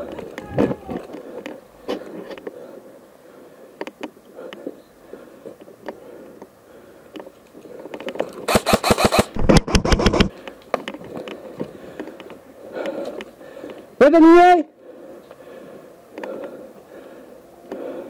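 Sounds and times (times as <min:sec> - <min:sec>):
airsoft gun automatic fire: 0:08.5 - 0:10.3.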